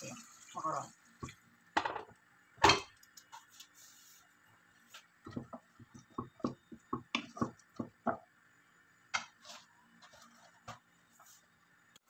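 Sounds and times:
wooden spatula knocking in saucepan: 5.2 - 8.3.

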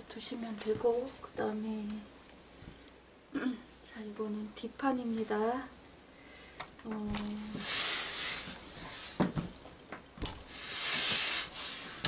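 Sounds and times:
steam iron hissing: 7.2 - 9.2, 10.3 - 12.0.

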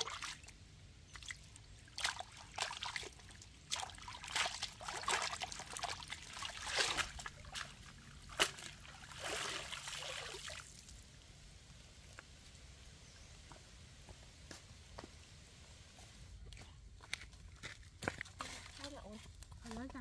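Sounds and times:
stream water splashing: 0.0 - 11.2.

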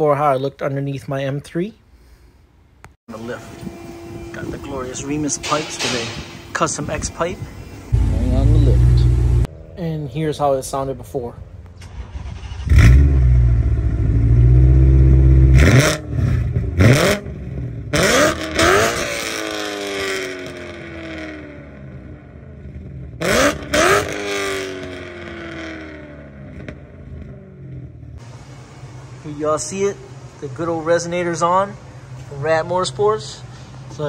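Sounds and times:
car engine idling and revving: 3.2 - 9.7, 11.6 - 29.2.

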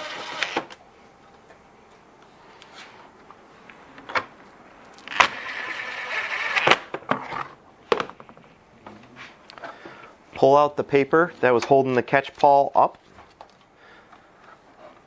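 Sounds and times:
impact driver motor whine: 0.0 - 0.8.

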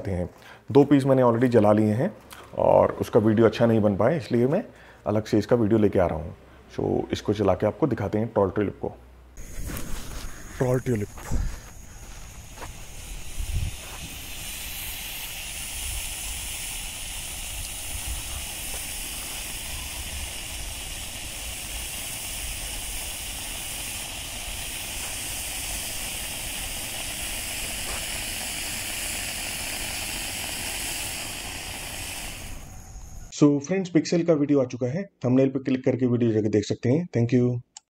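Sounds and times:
fountain firework hissing: 9.4 - 33.3.

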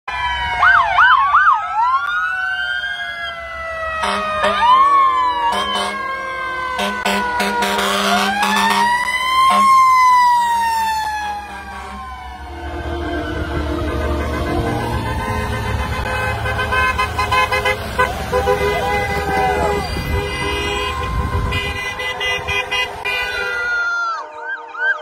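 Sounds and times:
emergency vehicle sirens wailing: 0.1 - 25.0
vehicle horn blasts: 6.8 - 8.9, 12.9 - 23.8.

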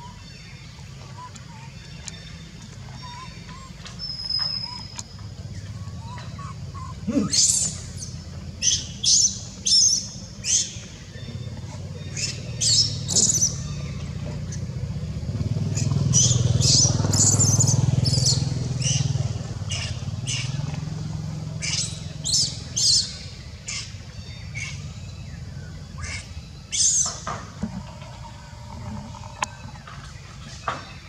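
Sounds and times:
vehicle engine passing: 2.2 - 30.7.

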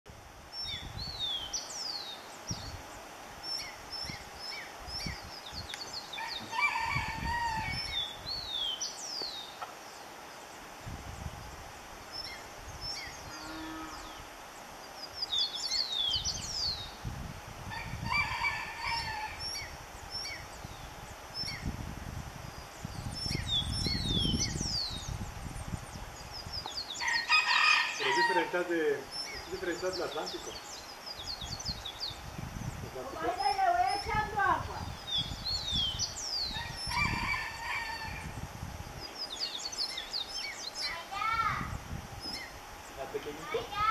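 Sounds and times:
birds chirping and whistling: 0.6 - 10.1, 12.0 - 14.2, 14.9 - 17.0, 18.1 - 21.8, 22.4 - 43.9
lower bird call: 12.0 - 17.0.

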